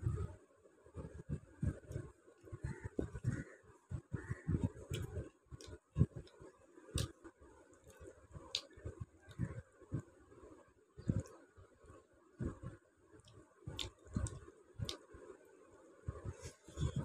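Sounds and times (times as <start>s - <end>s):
person chewing food: 13.2s - 15.0s.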